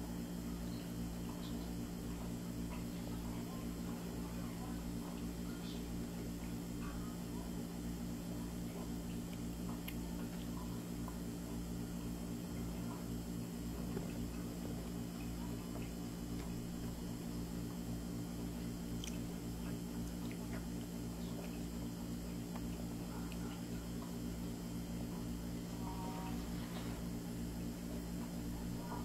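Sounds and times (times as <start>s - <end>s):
low electrical hum: 0.0s - 29.0s
toddler eating a grape: 12.5s - 29.0s.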